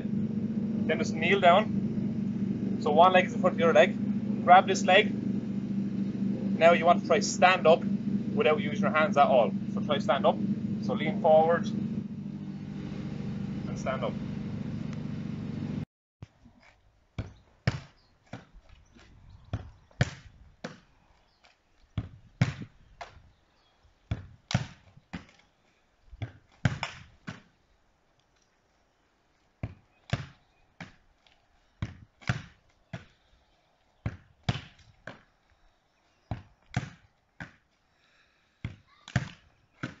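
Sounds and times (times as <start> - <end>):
football thudding against wall: 22.0 - 22.7, 24.1 - 24.8, 31.8 - 33.1, 34.0 - 35.2, 36.3 - 37.6.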